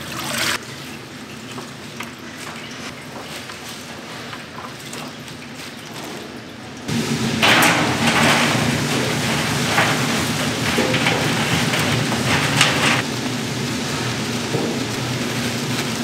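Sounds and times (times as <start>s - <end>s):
loud uneven hissing: 6.9s - 16.0s
machine hum: 6.9s - 16.0s.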